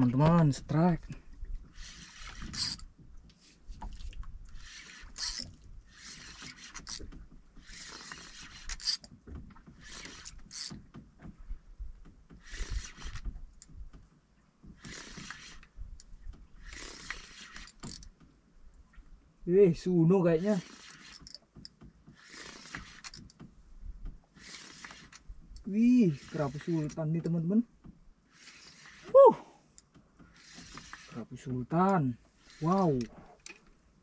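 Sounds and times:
fishing reel whirring: 0:01.6 - 0:02.9, 0:04.5 - 0:09.1, 0:09.8 - 0:10.8, 0:12.4 - 0:13.2, 0:14.8 - 0:15.7, 0:16.6 - 0:18.1, 0:20.4 - 0:21.4, 0:22.2 - 0:23.4, 0:24.3 - 0:27.0, 0:28.3 - 0:29.3, 0:30.3 - 0:31.2, 0:32.4 - 0:33.6.

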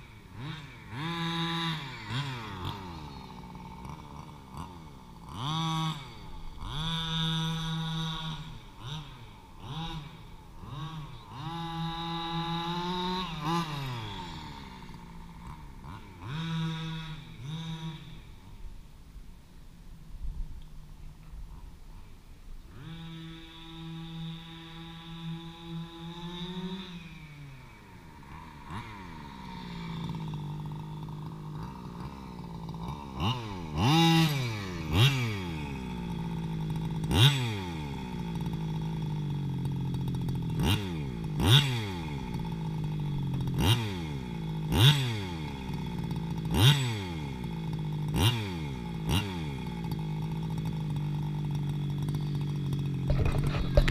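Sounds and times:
two-stroke engine revving: 0:00.0 - 0:18.9, 0:20.9 - 0:53.9
metal rattle: 0:52.1 - 0:53.9.

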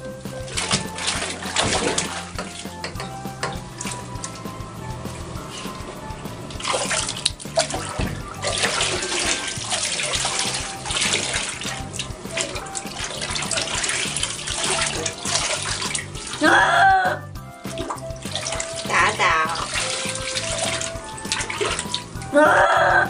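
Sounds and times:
water pouring and splashing: 0:00.0 - 0:16.8, 0:17.6 - 0:23.0
cat crying: 0:16.4 - 0:17.2, 0:22.4 - 0:23.0.

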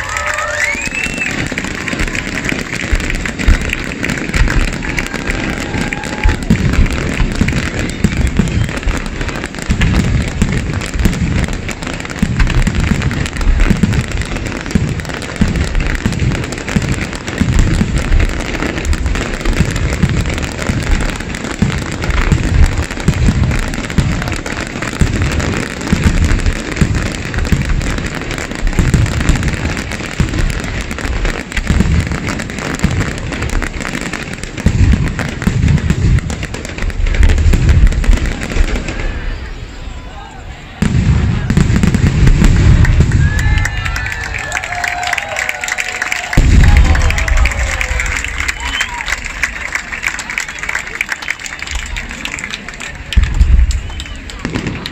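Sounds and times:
fireworks booming: 0:00.0 - 0:51.0, 0:51.6 - 0:54.9
fireworks hiss and crackle: 0:00.0 - 0:54.9.

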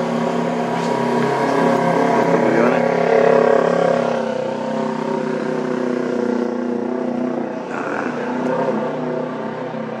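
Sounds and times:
engine drone: 0:00.0 - 0:10.0.

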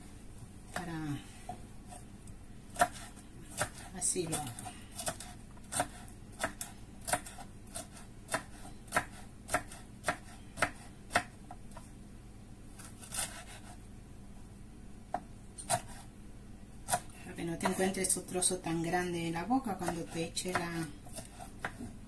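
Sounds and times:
knife chopping on wooden board: 0:02.8 - 0:11.3, 0:19.8 - 0:22.0.

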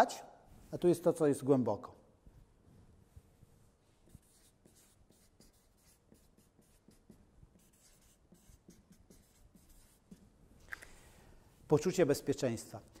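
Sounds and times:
marker scratching on paper: 0:03.8 - 0:10.3.

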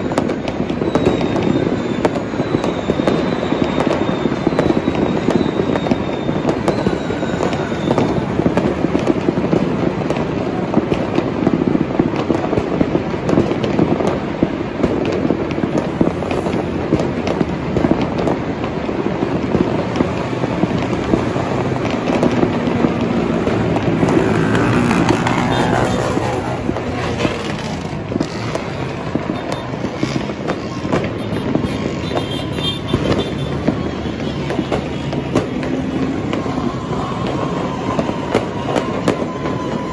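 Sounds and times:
fireworks crackling and popping: 0:00.0 - 0:39.9
highway traffic: 0:00.0 - 0:39.9
vehicle passing: 0:22.4 - 0:38.3.

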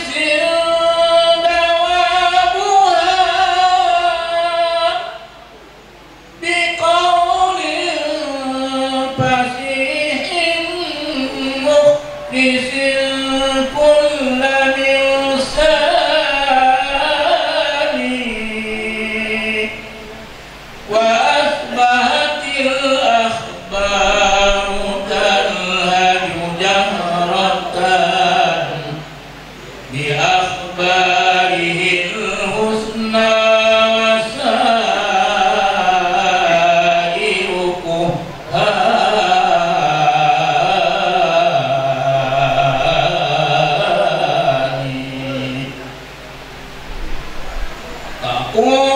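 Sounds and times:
person chanting: 0:06.4 - 0:20.2, 0:20.9 - 0:29.1, 0:29.9 - 0:45.9.

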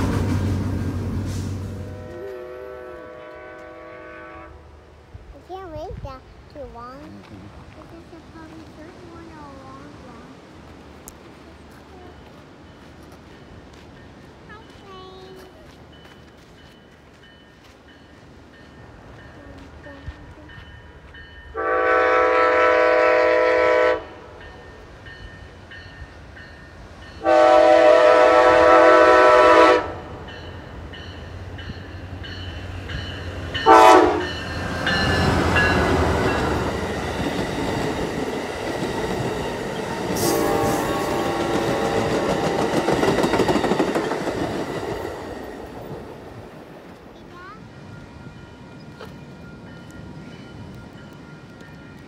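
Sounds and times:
train wheels rumbling on rail: 0:00.0 - 0:52.0
train air horn blasts: 0:01.2 - 0:04.9, 0:21.5 - 0:24.4, 0:27.2 - 0:30.2, 0:33.6 - 0:34.4, 0:40.2 - 0:42.3.

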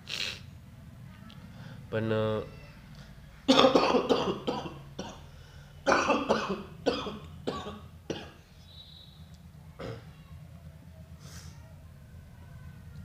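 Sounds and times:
man coughing: 0:03.5 - 0:05.2.

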